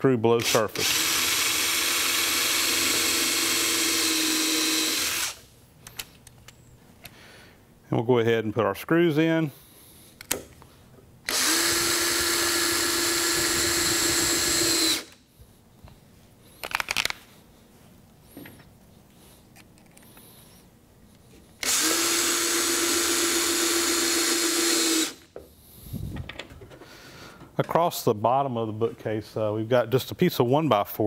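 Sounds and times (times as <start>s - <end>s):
cordless drill driving screws: 0.4s - 5.4s, 11.3s - 15.2s, 21.6s - 25.3s.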